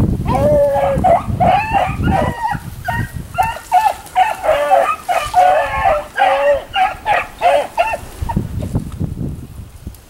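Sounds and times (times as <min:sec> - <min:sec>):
dog baying: 0:00.3 - 0:08.1.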